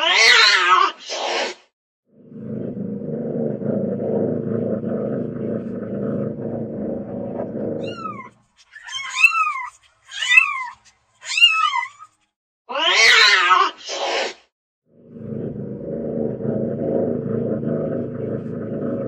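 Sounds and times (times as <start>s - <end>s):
cat meowing: 7.8s - 12.0s
low rumbling noise: 15.0s - 19.0s.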